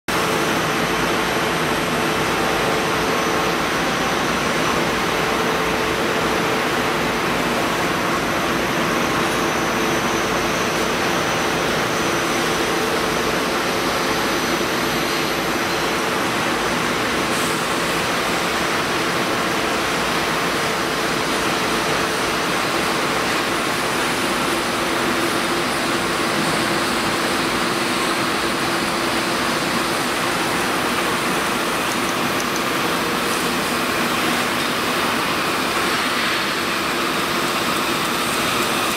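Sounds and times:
machine noise: 0.1 - 38.9.

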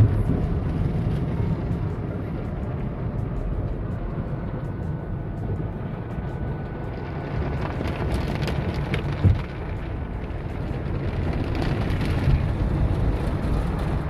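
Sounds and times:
car wash low rumble: 0.0 - 14.0
water spraying on windshield: 7.0 - 14.0.

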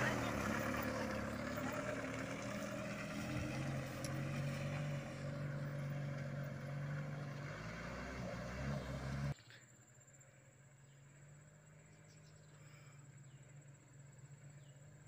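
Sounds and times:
truck engine running: 0.0 - 9.4.

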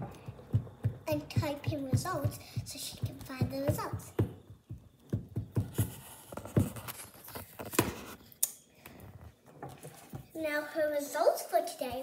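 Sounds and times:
sharp knocks: 0.0 - 5.9.

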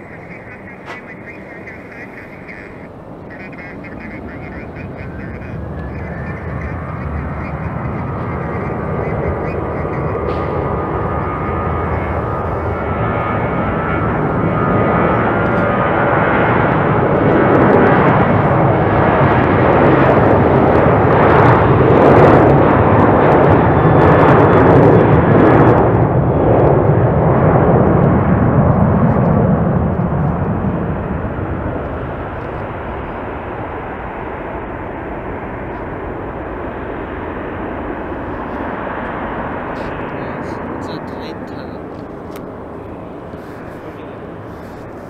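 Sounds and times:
jet engines at takeoff: 0.0 - 45.0.

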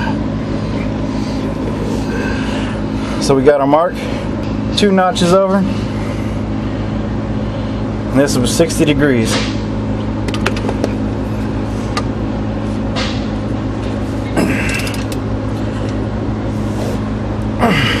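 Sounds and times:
steady low hum: 0.0 - 18.0
wrench metallic clicks: 14.7 - 15.2.

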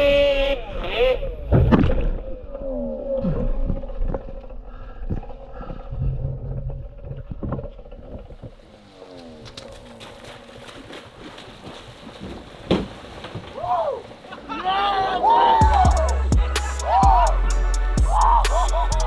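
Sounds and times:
muffled splashing: 8.0 - 14.5
knocks in water: 10.9 - 13.5.

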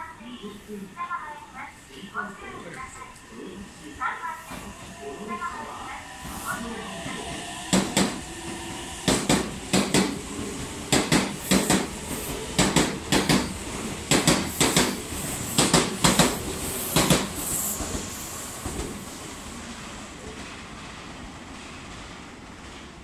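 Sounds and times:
train running noise: 0.0 - 20.5
train wheels clacking over rail joints: 7.7 - 18.0.

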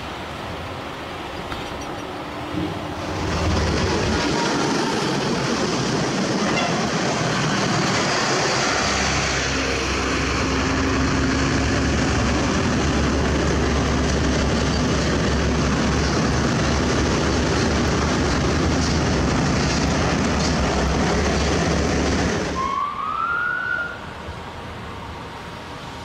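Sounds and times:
truck diesel engine rumbling: 2.6 - 22.8.

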